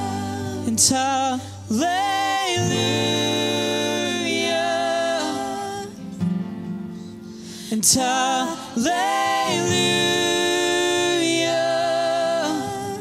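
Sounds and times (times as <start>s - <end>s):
worship singers singing: 0.0s - 6.2s, 7.5s - 13.0s.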